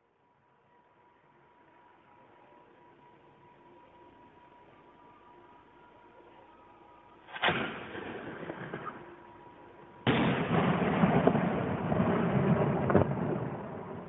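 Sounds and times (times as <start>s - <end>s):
sharp firework crack: 7.3s - 9.3s, 10.1s - 14.0s
fireworks bangs: 7.3s - 14.0s.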